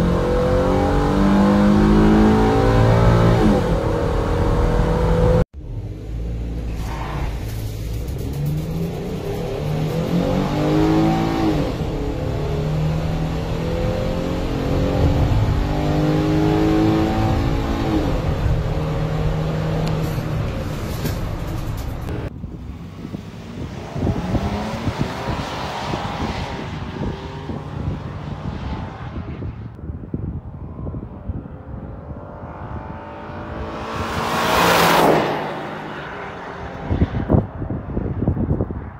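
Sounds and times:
van engine accelerating: 0.0 - 25.4
gear upshifts: 6.6 - 29.7
wind buffeting microphone: 8.7 - 34.7, 35.6 - 38.9.

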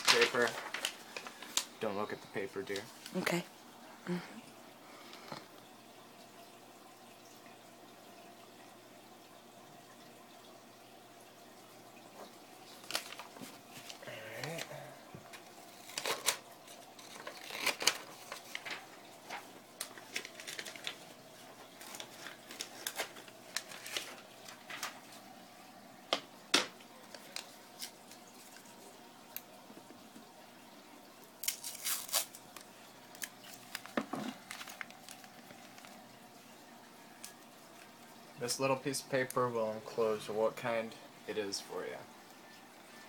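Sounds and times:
tape tearing: 15.7 - 16.4, 17.0 - 18.6, 31.4 - 32.6.

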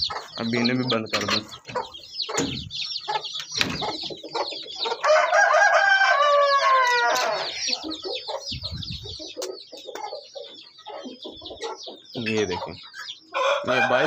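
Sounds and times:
chicks peeping: 0.0 - 14.0
sharp knocks: 2.3 - 2.7
rooster crowing: 5.0 - 7.8, 13.3 - 14.0.

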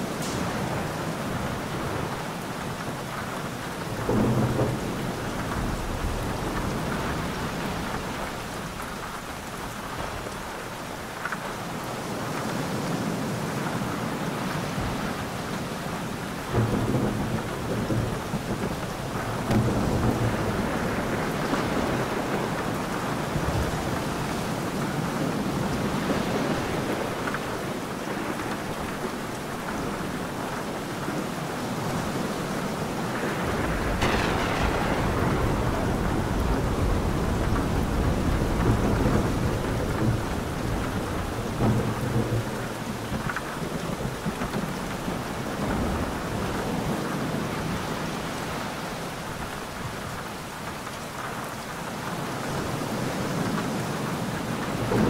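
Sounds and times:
thunder rumbling: 0.0 - 11.2, 14.8 - 48.4, 54.4 - 55.0
heavy rain: 0.0 - 55.0
sharp thunderclap: 3.8 - 10.4, 16.4 - 24.8, 33.0 - 46.2.

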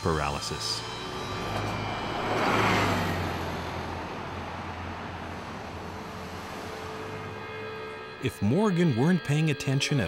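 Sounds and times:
rumble of passing cars: 0.0 - 8.2
vehicle passing close by: 0.8 - 8.0.

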